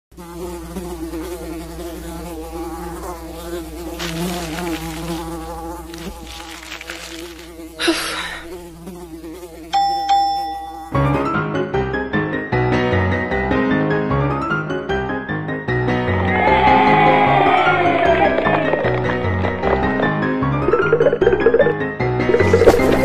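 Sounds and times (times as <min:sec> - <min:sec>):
fly buzzing: 0:00.1 - 0:11.2, 0:16.1 - 0:23.0
bright chime-like dings: 0:09.8 - 0:10.9.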